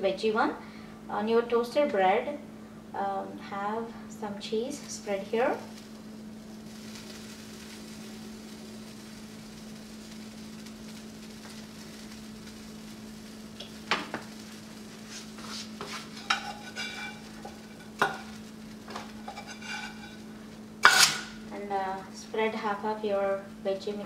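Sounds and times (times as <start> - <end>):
steady low hum: 0.0 - 24.0
utensils clinking on ceramic dishes: 16.2 - 18.3.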